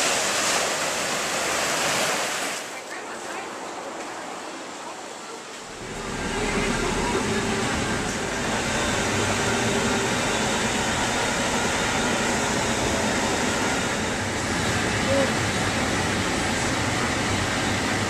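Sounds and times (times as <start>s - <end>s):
road and engine noise in van: 5.7s - 11.2s.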